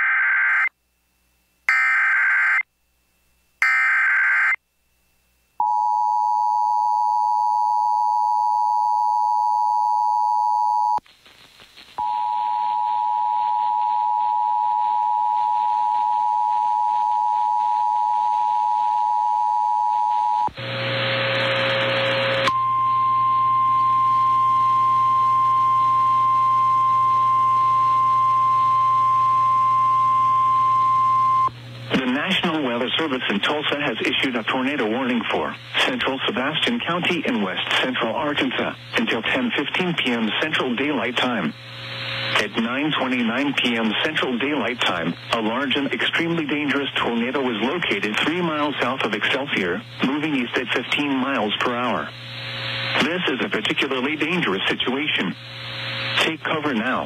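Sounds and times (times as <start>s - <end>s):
static and hum: 0.0s - 57.0s
radio hiss: 11.0s - 12.1s, 20.5s - 22.5s, 31.5s - 57.0s.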